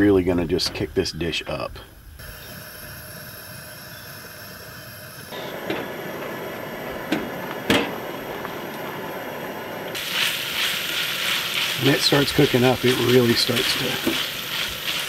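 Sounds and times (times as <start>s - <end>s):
camp stove burner hissing: 0.0s - 15.0s.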